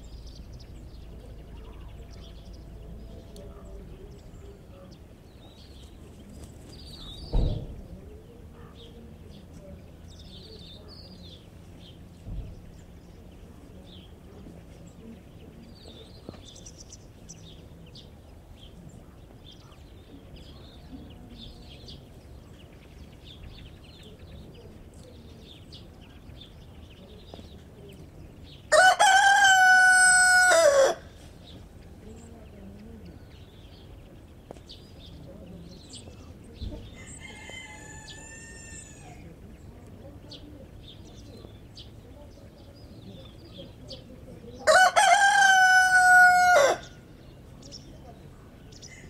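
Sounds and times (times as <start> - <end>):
rooster crowing: 28.7 - 31.1, 37.0 - 39.1, 44.6 - 46.9.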